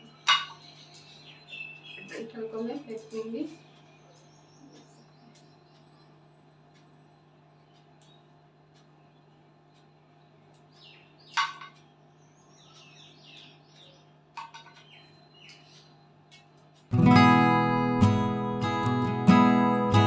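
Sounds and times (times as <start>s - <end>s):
guitar music: 16.9s - 20.0s.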